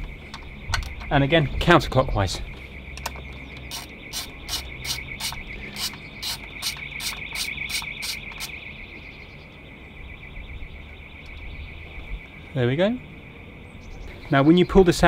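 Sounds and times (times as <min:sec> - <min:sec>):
insect chirring: 0:00.0 - 0:13.7
ratchet wrench clicking: 0:03.6 - 0:08.6.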